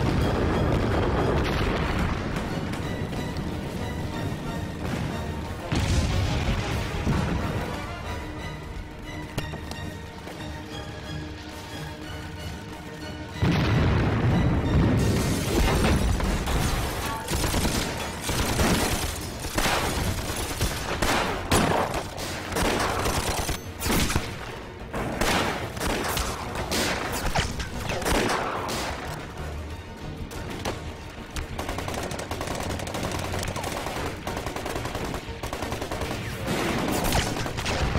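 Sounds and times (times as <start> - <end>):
background music: 0.0 - 37.9
rapid gunfire: 17.3 - 24.3, 31.5 - 37.9.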